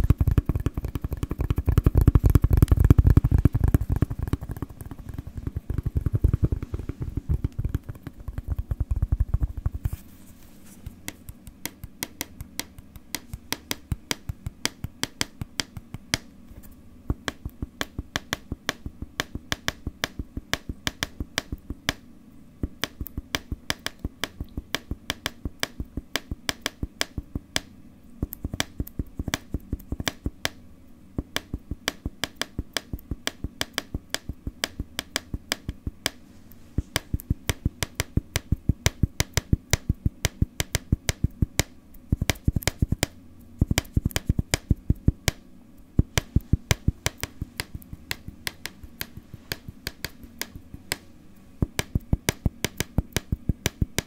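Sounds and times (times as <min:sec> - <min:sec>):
tapping on a hard surface: 0:00.0 - 0:09.8.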